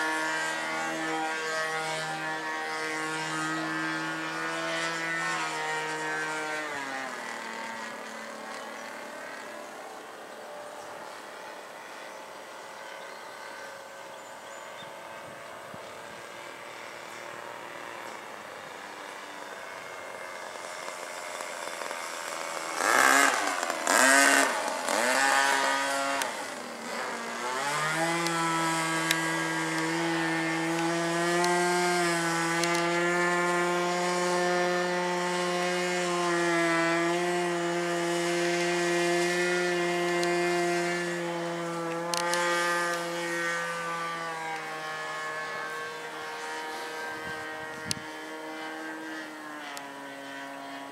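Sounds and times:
model airplane engine in flight: 0.0s - 50.9s.

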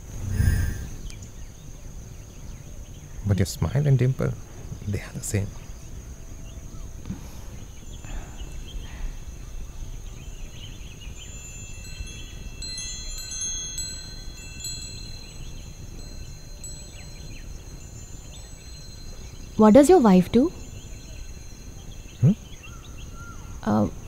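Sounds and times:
wind chime bells tinkling: 10.6s - 22.2s.

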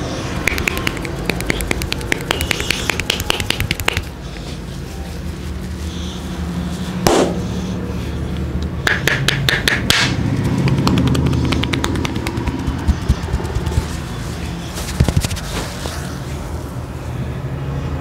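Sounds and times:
sharp taps on head: 0.5s - 4.1s, 8.9s - 13.9s
slap on scalp: 0.5s - 4.1s.

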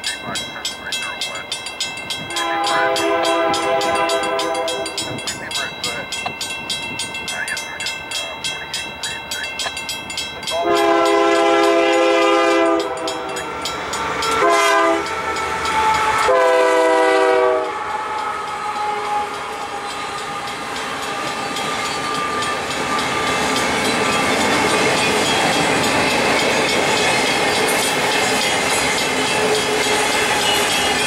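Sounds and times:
diesel locomotive horn: 2.3s - 5.2s, 10.5s - 21.4s
train wheels clattering over rails: 16.9s - 31.0s.

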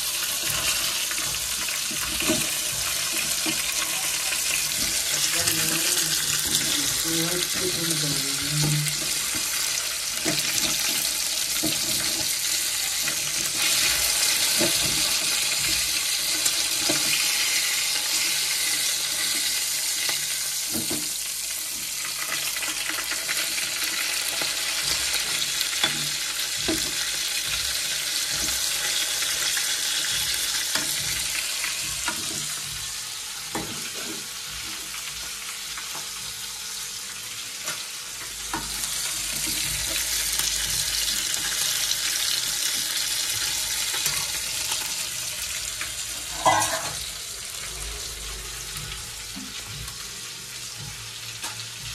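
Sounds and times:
fish sizzling in oil: 0.0s - 51.9s
metal spatula scraping pan: 46.2s - 47.1s.

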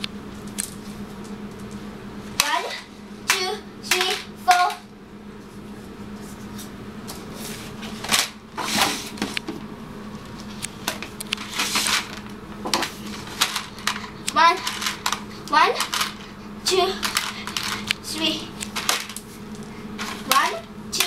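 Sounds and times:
faint steady hum: 0.0s - 21.0s
paper rustling: 11.4s - 16.4s, 17.0s - 18.0s
plastic tub of counters clattering: 11.5s - 15.2s, 15.8s - 16.3s, 18.8s - 19.2s.

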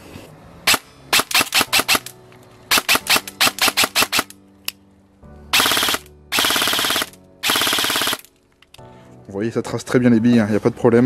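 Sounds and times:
airsoft rifle firing: 0.7s - 2.1s, 2.7s - 4.3s, 5.6s - 8.3s.

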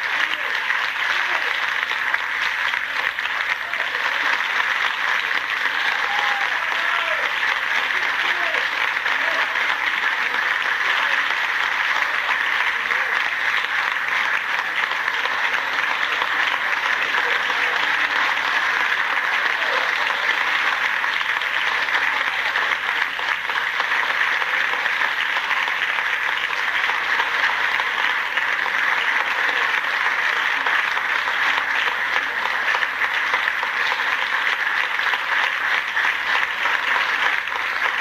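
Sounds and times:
audience applauding: 0.0s - 38.0s.

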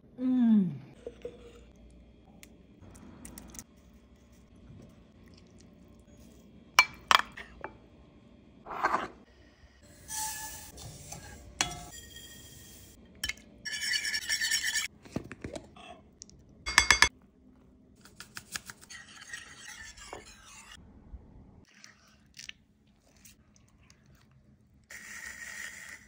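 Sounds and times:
utensils clinking in mixing bowls: 16.7s - 17.1s.

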